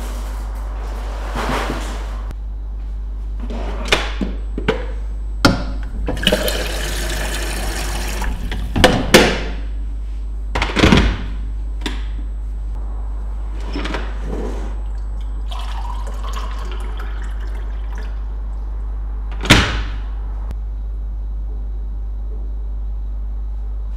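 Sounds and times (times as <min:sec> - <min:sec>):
tap water filling a kettle: 0:06.1 - 0:08.7.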